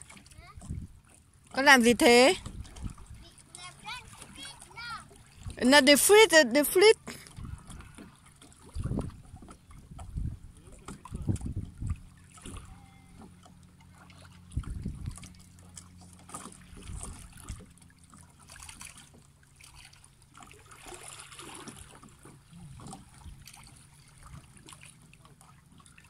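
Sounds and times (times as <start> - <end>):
waves lapping among rocks: 0.0 - 26.0
wind bumps on microphone: 0.6 - 1.0, 7.3 - 7.9, 8.7 - 12.1, 14.5 - 15.2.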